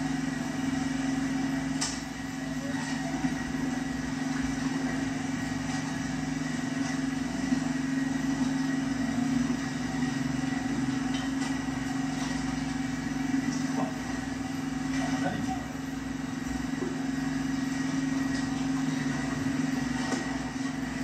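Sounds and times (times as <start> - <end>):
engine humming through speaker: 13.2 - 17.0.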